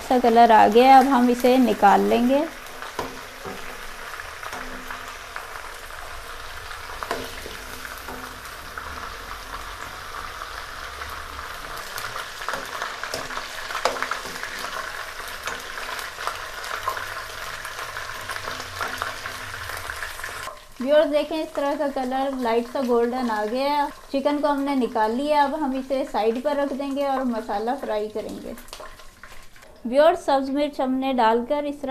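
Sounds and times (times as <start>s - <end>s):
chicken sizzling in hot oil: 0.0s - 29.9s
ladle scraping and knocking wok: 2.6s - 20.8s.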